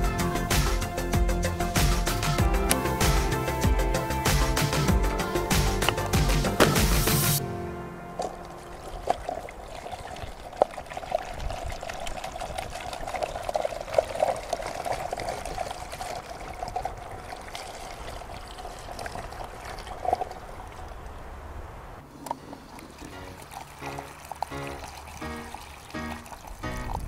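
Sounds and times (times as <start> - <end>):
water pouring into funnel: 8.2 - 21.0, 22.3 - 27.0.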